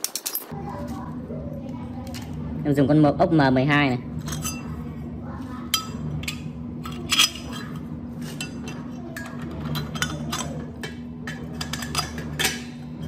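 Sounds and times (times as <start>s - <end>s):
metal parts clinking: 0.0s - 0.9s, 5.7s - 12.8s
steady low hum: 0.5s - 13.0s.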